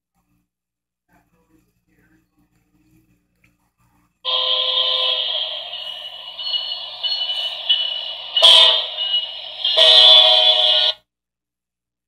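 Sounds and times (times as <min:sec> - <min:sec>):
locomotive horn blast: 0:04.3 - 0:11.0.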